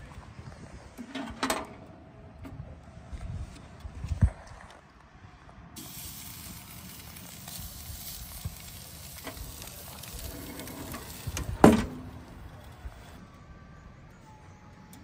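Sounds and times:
meat sizzling on a grill: 0:05.8 - 0:13.1.

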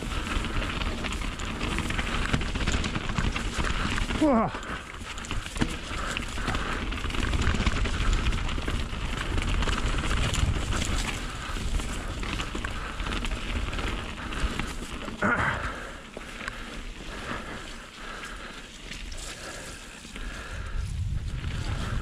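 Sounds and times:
wind rumbling on microphone: 0:00.0 - 0:14.8, 0:19.2 - 0:22.0
bike rattling and clicking: 0:00.0 - 0:22.0
tyres rolling over wet stony ground: 0:00.0 - 0:22.0.

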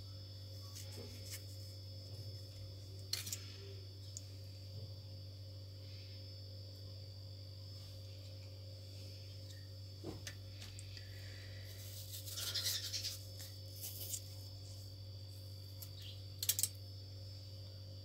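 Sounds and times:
rustling and scraping: 0:00.6 - 0:03.6, 0:11.5 - 0:14.9.

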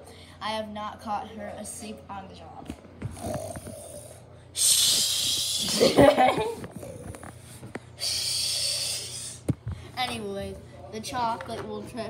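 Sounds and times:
person imitating snoring: 0:03.1 - 0:05.7.

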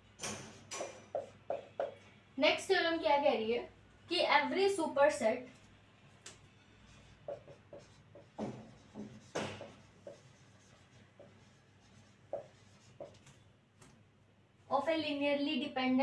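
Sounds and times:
marker pen squeaking on whiteboard: 0:00.5 - 0:02.0, 0:06.2 - 0:13.4.

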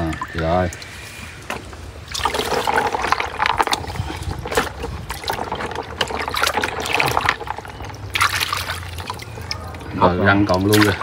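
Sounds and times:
water splashing in a basin: 0:00.0 - 0:11.0
bones knocking and clattering: 0:01.5 - 0:09.8.

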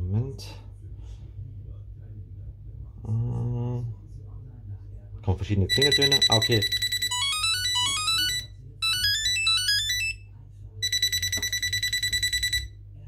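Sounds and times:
high-pitched beep pulsing rapidly: 0:05.7 - 0:10.1, 0:10.8 - 0:12.7.

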